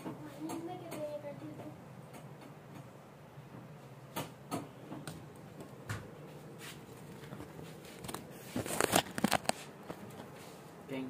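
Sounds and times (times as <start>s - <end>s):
scratchy clicks and scrapes: 7.8s - 10.3s.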